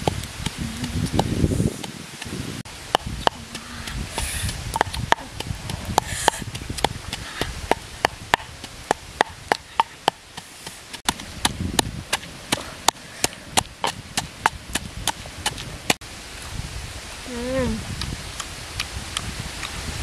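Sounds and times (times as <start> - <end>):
pestle pounding in mortar: 2.9 - 15.7.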